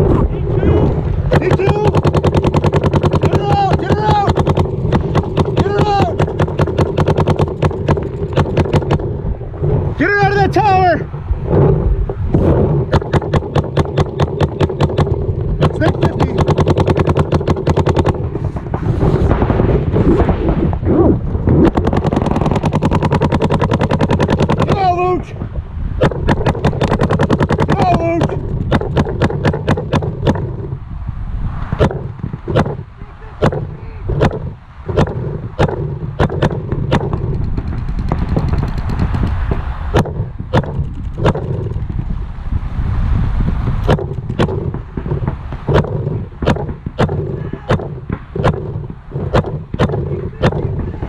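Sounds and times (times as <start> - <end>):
balls smacking inflatable bunker: 1.3 - 9.2, 26.0 - 30.6, 31.7 - 42.0, 43.8 - 51.0
distant rattle of shots: 1.3 - 9.2, 12.9 - 18.8, 21.7 - 24.8, 26.0 - 30.5, 33.4 - 39.4, 43.9 - 50.9
paintball marker rapid firing: 1.3 - 9.2, 12.9 - 20.3, 21.6 - 24.9, 26.0 - 30.5, 31.7 - 41.9, 43.8 - 51.0.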